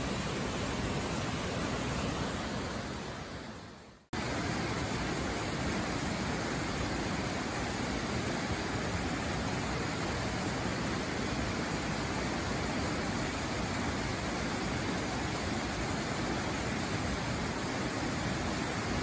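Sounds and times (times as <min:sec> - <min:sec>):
waterfall rushing: 0:04.2 - 0:19.0.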